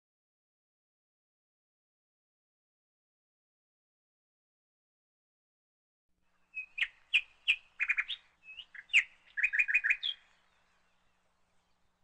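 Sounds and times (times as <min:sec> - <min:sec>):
bird chirping: 0:06.3 - 0:12.0.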